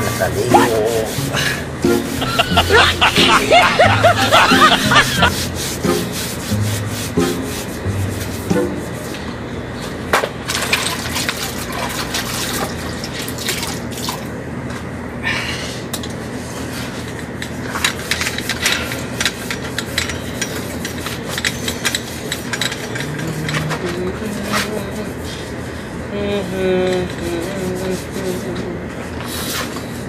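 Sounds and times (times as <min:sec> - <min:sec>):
cloth rubbing on bicycle frame: 0:00.0 - 0:09.2.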